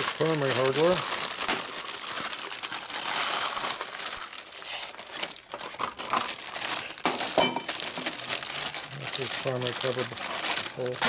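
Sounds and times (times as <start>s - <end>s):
plastic parts box rattling: 0.0s - 2.5s, 5.0s - 11.0s
plastic bag crinkling: 0.0s - 11.0s
metal parts clinking: 7.2s - 7.8s, 8.5s - 11.0s.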